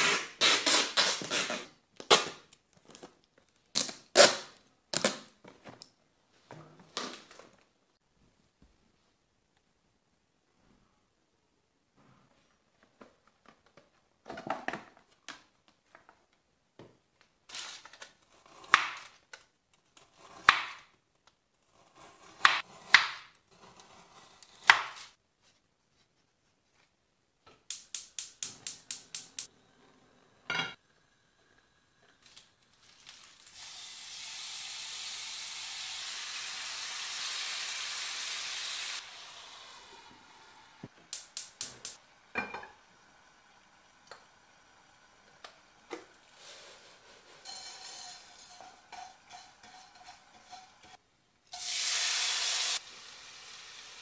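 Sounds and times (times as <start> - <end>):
food sizzling in a frying pan: 33.0 - 40.7, 47.4 - 54.0.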